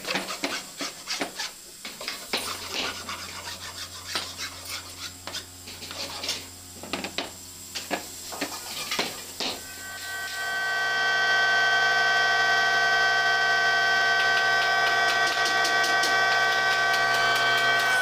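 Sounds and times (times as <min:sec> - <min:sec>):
electric motor whining: 0:09.4 - 0:18.0.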